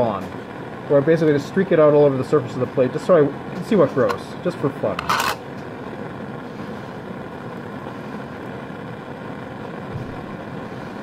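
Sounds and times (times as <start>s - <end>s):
bunsen burner flame hissing: 0.0s - 11.0s.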